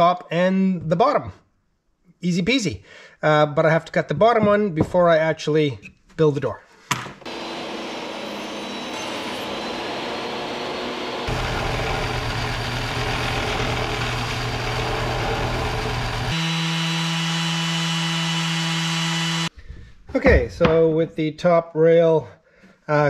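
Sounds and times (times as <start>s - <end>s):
belt sander humming: 7.2s - 19.5s
handheld power tool whining: 7.2s - 19.5s
workshop power tools running: 7.2s - 19.5s.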